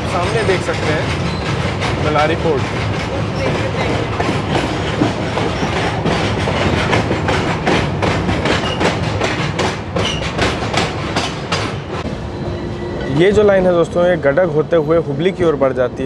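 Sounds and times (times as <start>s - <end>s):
train wheels clattering over rail joints: 0.0s - 12.1s.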